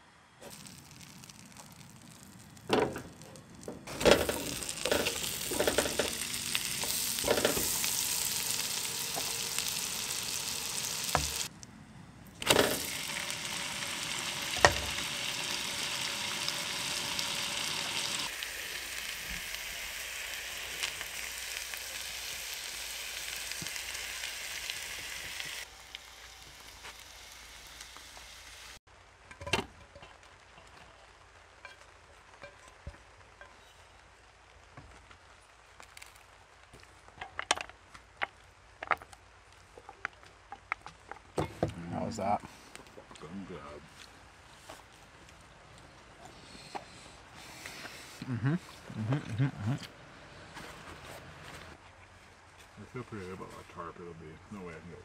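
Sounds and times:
steak sizzling in butter: 0.4s - 11.5s, 12.4s - 28.8s.

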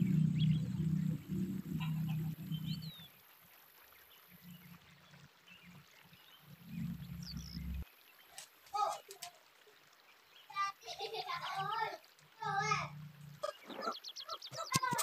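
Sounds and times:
steady low hum: 0.0s - 3.3s, 4.2s - 7.9s, 12.3s - 13.6s
faint bird chirps: 0.0s - 8.9s, 10.1s - 15.0s.

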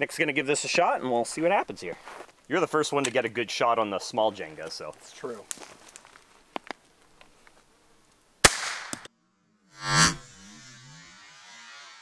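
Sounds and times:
rifle shot crack: 8.4s - 9.1s.

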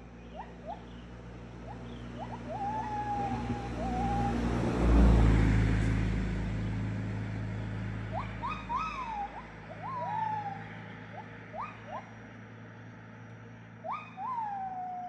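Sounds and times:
birds whistling: 0.0s - 4.7s, 8.0s - 12.2s, 13.3s - 15.0s
car engine running: 0.0s - 13.8s.

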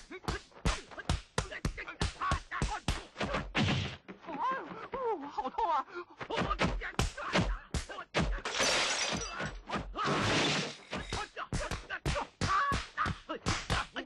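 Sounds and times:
something smashing and breaking: 8.4s - 11.1s.

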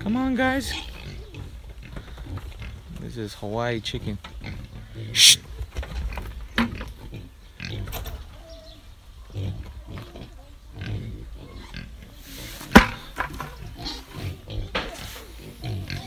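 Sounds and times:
pigs grunting: 0.6s - 3.0s, 4.0s - 5.4s, 6.7s - 8.0s, 9.2s - 12.6s, 13.5s - 16.0s.

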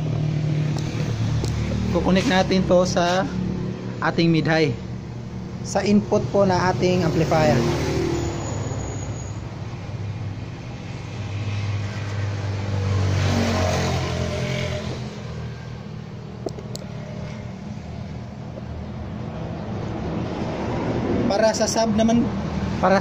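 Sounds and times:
vehicle engine passing by: 6.2s - 16.2s, 19.0s - 23.0s.

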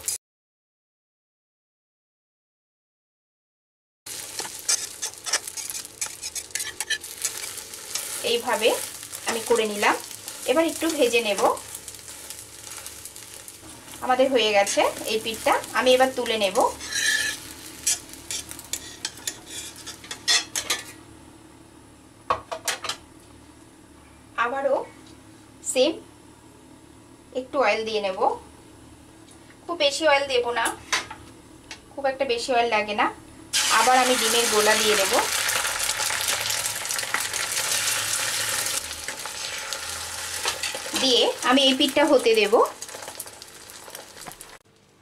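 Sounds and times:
egg sizzling in hot oil: 4.1s - 20.7s, 33.6s - 44.6s
metal spatula scraping pan: 4.2s - 8.4s, 16.7s - 20.8s.

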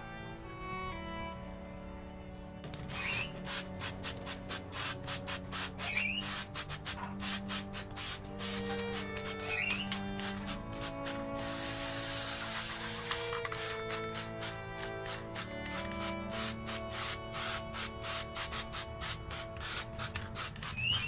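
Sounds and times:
brief squeaks: 2.7s - 3.4s, 5.8s - 6.4s, 9.3s - 10.0s, 20.6s - 21.0s
spray paint can hissing: 2.7s - 21.0s.

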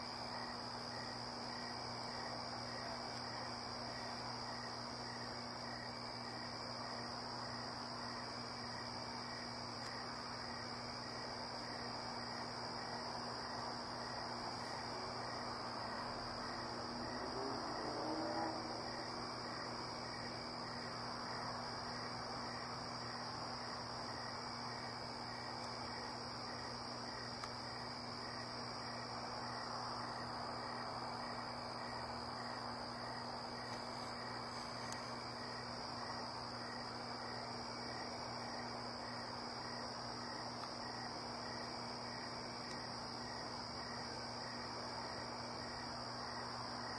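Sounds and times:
crickets trilling: 0.0s - 46.9s
faint regular insect chirp: 0.0s - 46.9s.

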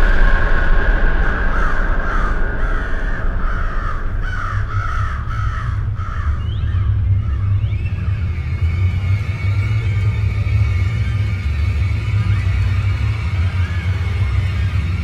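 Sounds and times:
loud low rumble: 0.0s - 15.0s
crows cawing: 1.2s - 7.6s.

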